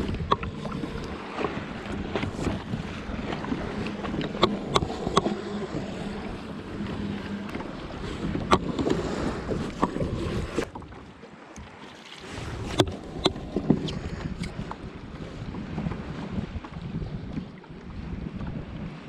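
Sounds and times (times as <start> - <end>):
water sloshing along a hull: 0.0 - 19.0
wind on microphone: 0.0 - 19.0
sharp clicks and knocks: 0.1 - 2.6, 3.3 - 5.7, 6.7 - 9.1.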